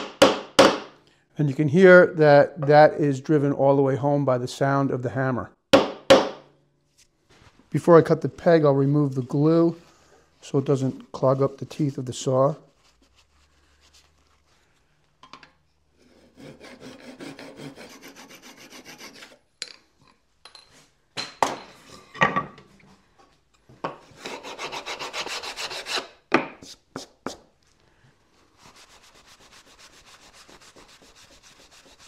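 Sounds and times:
handsaw cutting wood: 0:16.0 - 0:19.4, 0:24.2 - 0:26.1
paper towel rubbing wood: 0:28.4 - 0:32.0.

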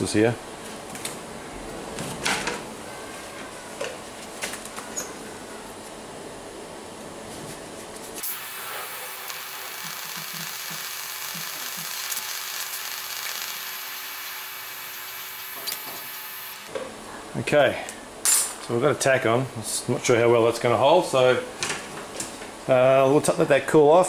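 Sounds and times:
welding arc hissing: 0:08.2 - 0:16.7.

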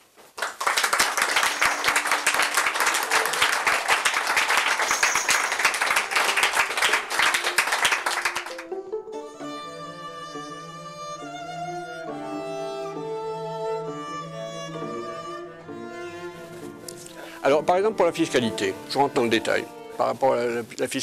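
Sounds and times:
audience applauding: 0:00.3 - 0:08.8
violin and cello music: 0:06.0 - 0:20.7.

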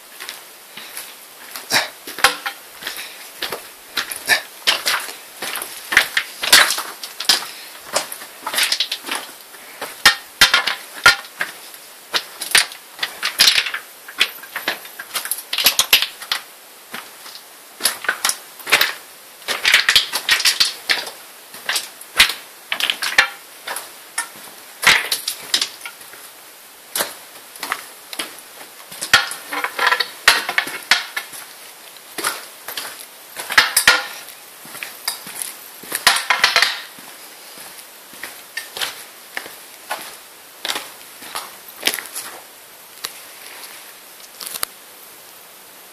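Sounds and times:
boots and gear scraping on rock: 0:00.1 - 0:16.3, 0:27.0 - 0:42.5.

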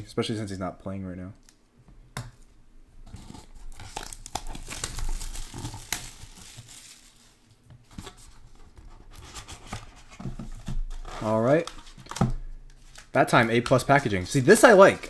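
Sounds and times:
plastic shrink wrap crinkling and tearing: 0:03.2 - 0:08.3.

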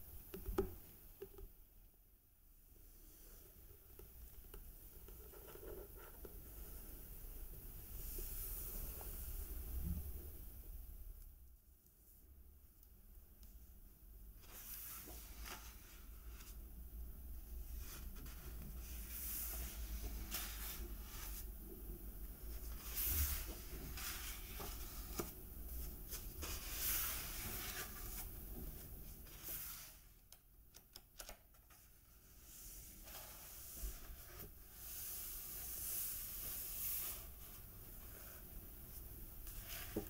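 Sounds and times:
hands brushing over paper pages: 0:17.7 - 0:21.7, 0:22.4 - 0:30.2, 0:31.7 - 0:40.0.

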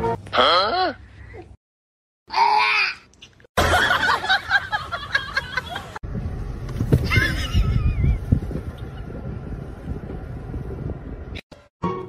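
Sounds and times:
wind on microphone: 0:06.0 - 0:11.4
low rumbling inside a car: 0:06.1 - 0:11.4.

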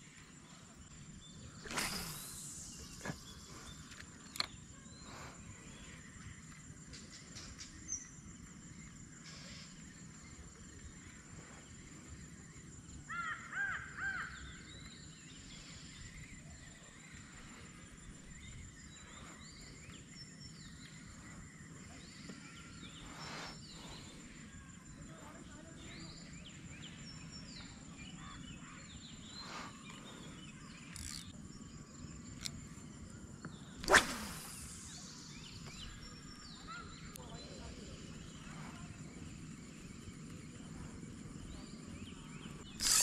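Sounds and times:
thin high-pitched hum: 0:38.6 - 0:43.0
sharp click: 0:42.8 - 0:43.0.

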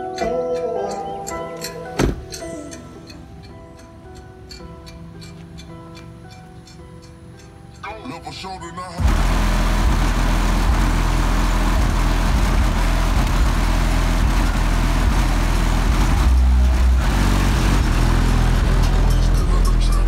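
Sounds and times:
deep bass music from closed car: 0:07.7 - 0:20.0.

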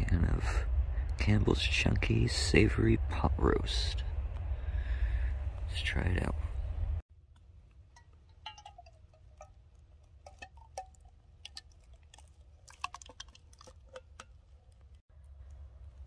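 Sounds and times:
can rim clinking on metal cup: 0:07.9 - 0:14.9
soup glopping: 0:08.3 - 0:15.0.

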